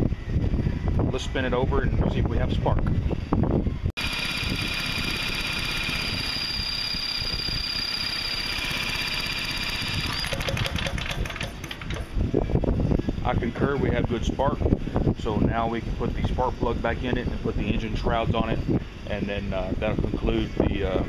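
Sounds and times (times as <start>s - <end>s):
cordless drill whining: 4.0s - 12.2s.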